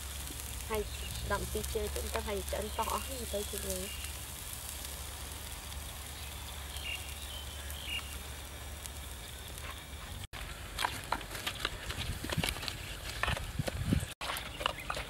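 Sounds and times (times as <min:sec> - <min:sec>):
low steady hiss: 0:00.0 - 0:10.3
roasting skin crackling and sizzling: 0:00.0 - 0:15.0.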